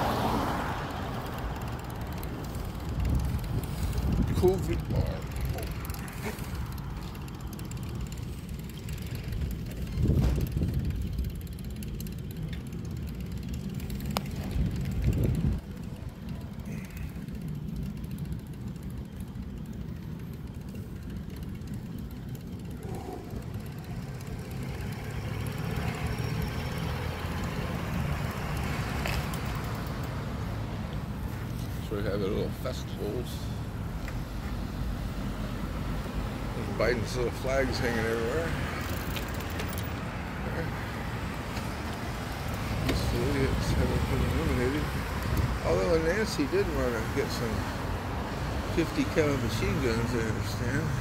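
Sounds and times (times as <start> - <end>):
tyre hiss of passing traffic: 0.0 - 51.0
wind rumbling on microphone: 1.9 - 12.2, 12.9 - 17.6.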